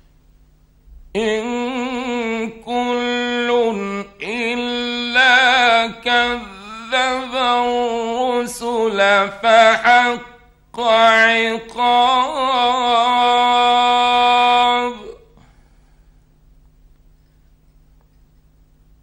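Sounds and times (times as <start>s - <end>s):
faint steady hum: 0.0s - 19.0s
man chanting melodically: 1.2s - 15.3s.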